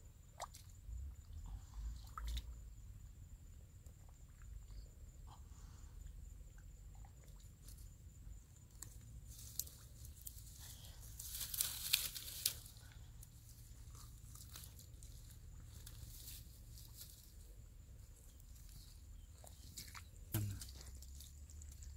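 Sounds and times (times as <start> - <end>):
hands digging through dry grass: 9.3 - 12.8.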